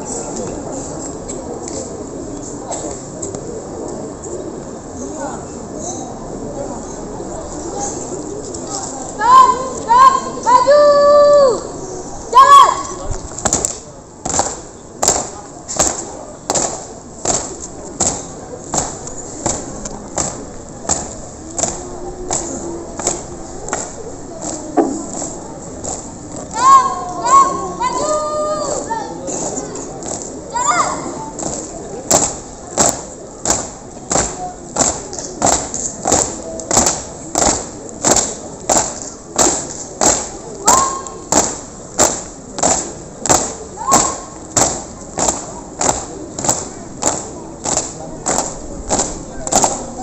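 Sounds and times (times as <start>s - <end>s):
marching feet stamping: 14.3s - 26.1s, 31.4s - 50.0s.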